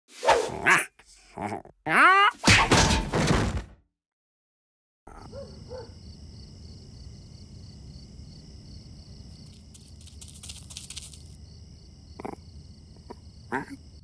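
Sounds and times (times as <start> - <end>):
crickets chirping: 5.1 - 14.0
rustling scratching noise: 9.4 - 11.4.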